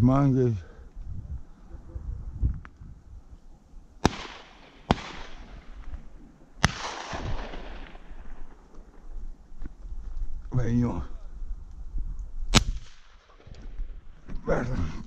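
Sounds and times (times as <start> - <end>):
shotgun shots with echo: 4.0 - 5.6, 6.6 - 8.2.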